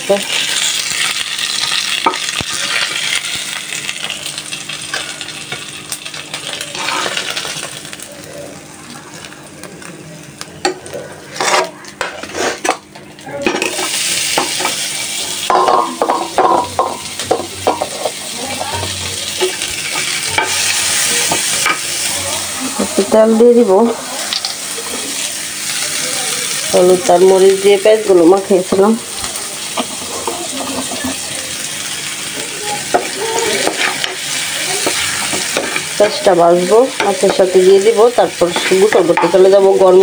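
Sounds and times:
hot oil sizzling in a frying pan: 0.0 - 40.0
spatula scraping against pan: 11.3 - 12.8.

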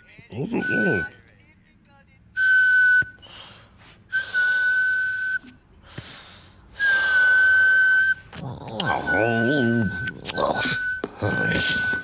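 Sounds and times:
high breathy whistling: 2.4 - 12.0.

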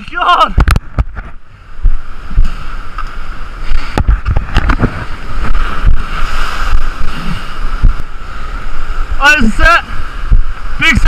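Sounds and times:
surf washing over rocks: 0.0 - 11.0
wind buffeting microphone: 0.0 - 11.0.

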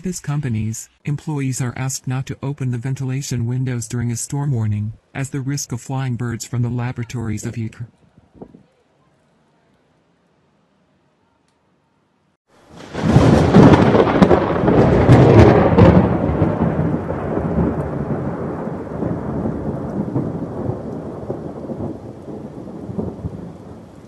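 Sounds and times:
rain: 12.5 - 24.0
thunder crack and rumble: 12.7 - 24.0.

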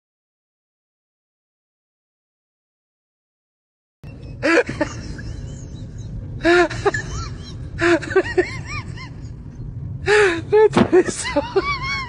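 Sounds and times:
low background noise: 4.1 - 12.0.

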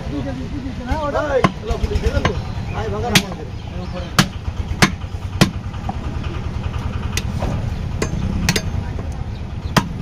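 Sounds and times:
low rumble: 1.6 - 10.0
cleaver chopping meat on wood: 3.1 - 3.4, 4.1 - 5.6, 9.7 - 10.0.

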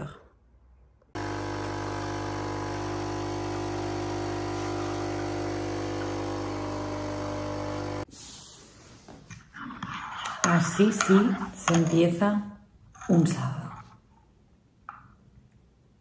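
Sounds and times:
coffee machine pump buzzing: 1.2 - 8.1.

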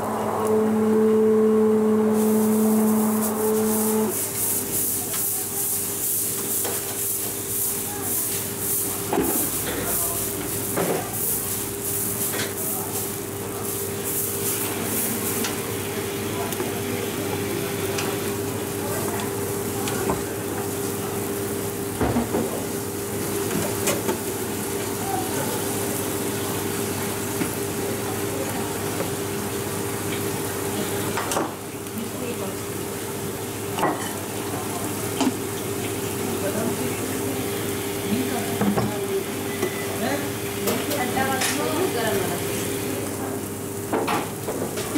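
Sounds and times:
steady hum: 0.0 - 5.6
batter sizzling on griddle: 0.8 - 44.9.

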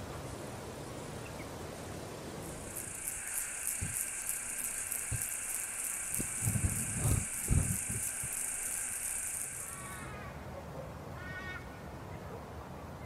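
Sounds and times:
low rumbling hiss: 0.0 - 12.1
insect chirping: 2.4 - 10.3.

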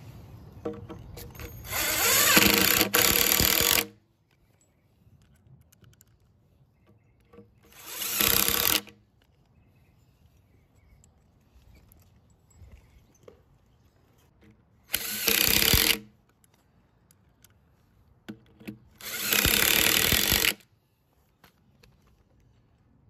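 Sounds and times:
cordless drill driving screws: 1.6 - 4.0, 7.7 - 9.0, 14.9 - 16.1, 19.0 - 20.6.

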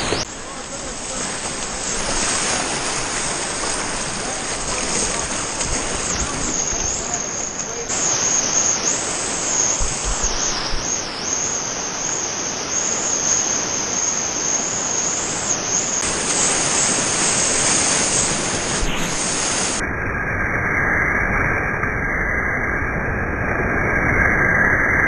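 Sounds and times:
whitewater rapids rushing: 0.0 - 19.8.

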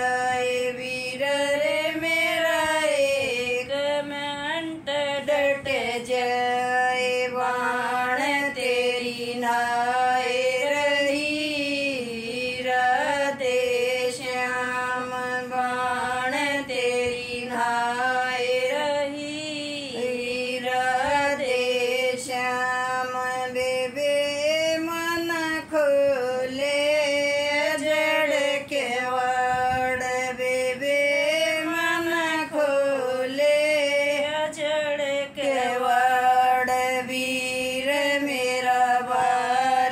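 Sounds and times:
woman singing unaccompanied: 0.0 - 39.9.

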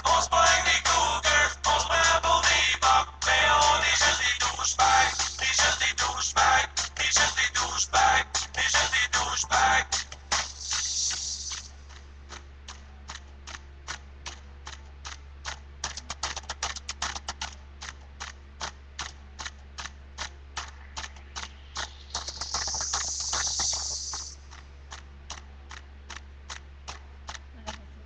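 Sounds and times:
music and singing: 0.0 - 11.7
short hiss: 10.3 - 11.7.

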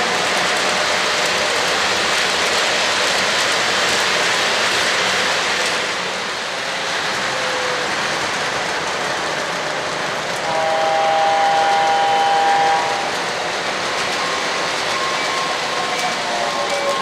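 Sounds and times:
model train rushing on track: 0.0 - 17.0
model locomotive horn chord: 10.4 - 13.1.

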